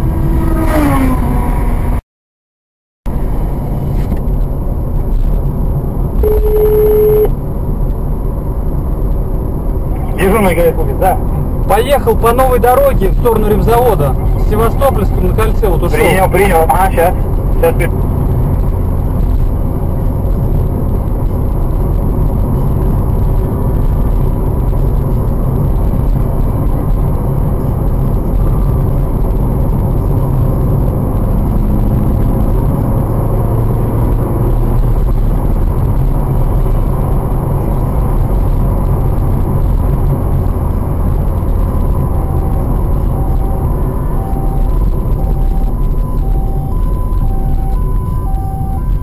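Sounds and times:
car engine and tyre rumble: 0.0 - 2.0, 3.1 - 49.0.

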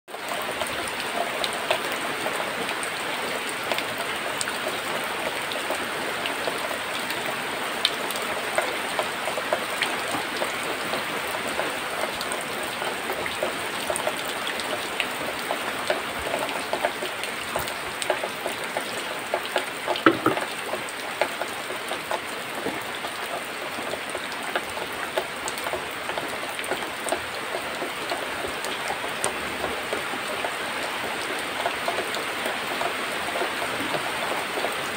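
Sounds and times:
rain hissing and pattering: 0.1 - 34.9
water drips: 13.0 - 28.3.

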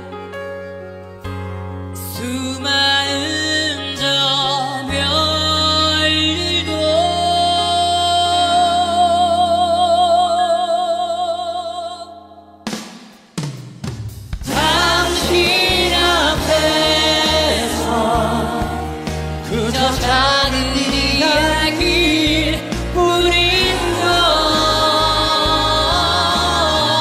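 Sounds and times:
ballad accompaniment: 0.0 - 27.0
man singing with vibrato: 2.0 - 12.3, 14.5 - 27.0
steady drum beat: 12.7 - 27.0.

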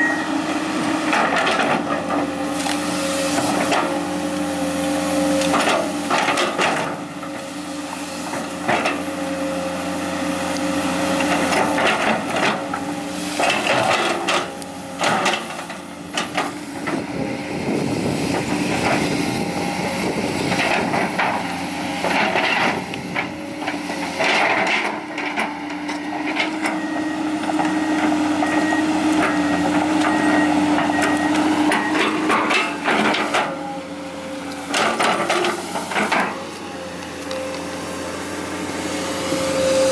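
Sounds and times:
excavator diesel engine humming: 0.0 - 39.9
refuse crunching: 17.8 - 39.9.

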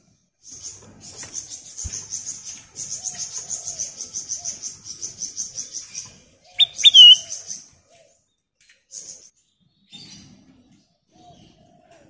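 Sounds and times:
bird sharp falling notes: 6.6 - 7.2
bird high-pitched pulsing chatter: 6.6 - 7.5.

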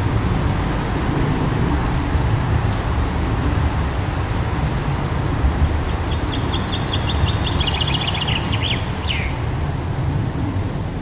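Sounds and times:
wind buffeting microphone: 0.0 - 11.0
songbird singing high notes: 6.0 - 9.4.

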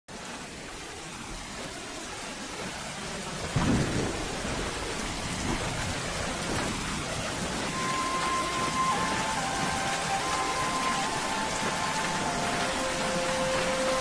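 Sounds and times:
steady rain: 0.1 - 14.0
thunder rumbling: 3.4 - 14.0
high musical note: 7.7 - 14.0.

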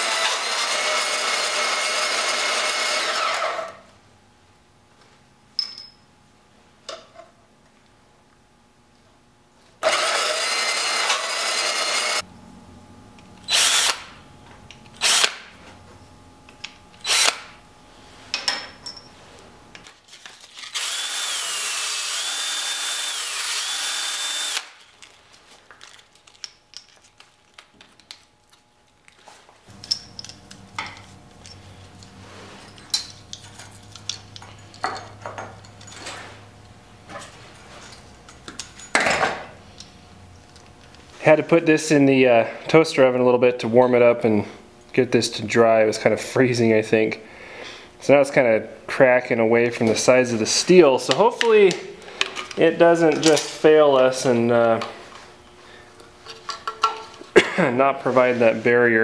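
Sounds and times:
bandsaw cutting metal rod: 0.0 - 3.8, 9.8 - 12.2, 20.6 - 24.8
cordless drill whining: 0.0 - 3.8, 9.8 - 12.2, 13.5 - 14.0, 17.0 - 17.4, 20.6 - 24.8
low hum: 12.2 - 20.0
light clicks of metal pieces: 51.1 - 53.6.

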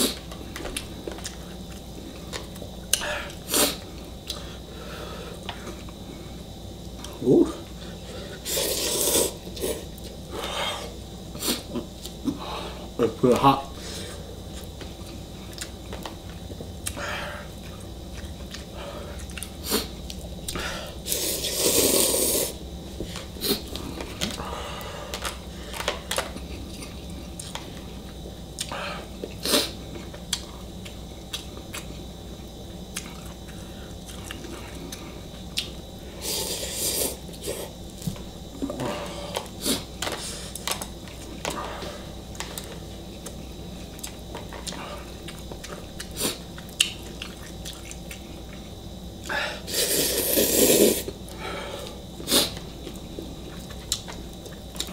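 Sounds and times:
slurping noodles: 8.4 - 9.8, 21.1 - 22.6, 36.2 - 37.7, 49.7 - 51.1
person chewing: 8.4 - 10.2, 14.4 - 32.0, 42.3 - 51.2, 51.8 - 54.9.

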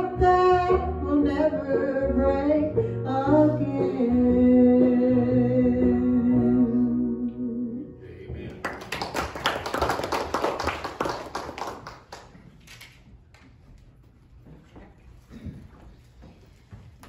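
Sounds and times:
people clapping: 8.4 - 12.8.

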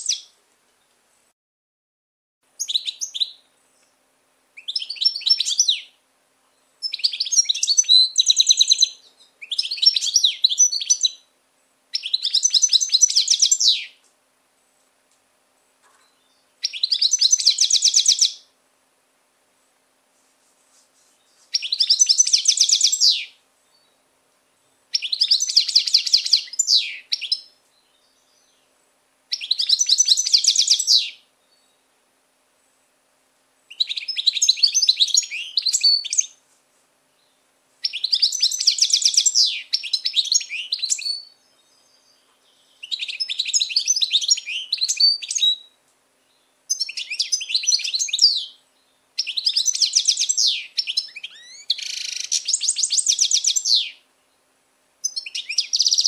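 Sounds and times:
goldfinch twittering song: 4.6 - 5.9, 6.8 - 11.2, 11.9 - 13.9, 16.0 - 18.4, 21.5 - 24.0, 29.4 - 31.8, 49.2 - 54.0, 55.0 - 56.0.

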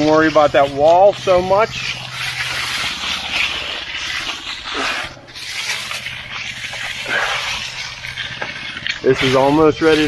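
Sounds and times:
wet concrete scraping: 0.0 - 10.0.

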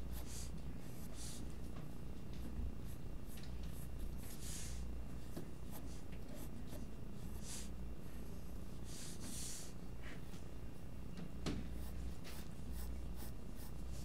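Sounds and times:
low steady hum: 0.0 - 14.0
pencil scratching on paper: 11.7 - 14.0.

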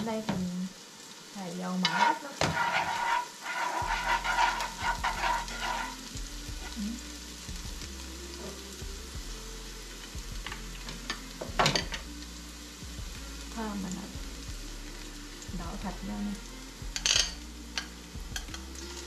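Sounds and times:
food sizzling in oil: 0.0 - 19.0
scraping and stirring in pan: 1.7 - 6.8, 17.0 - 19.0
utensil clanking on pan: 1.8 - 6.0.

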